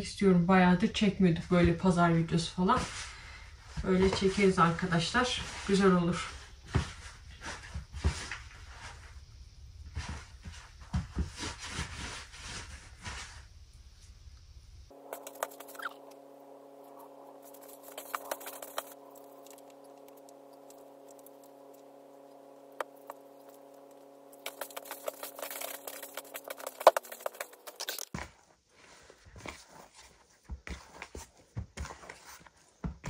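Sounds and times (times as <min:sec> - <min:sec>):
machine hum: 0:14.9 - 0:28.1
hands kneading dough: 0:14.9 - 0:33.0.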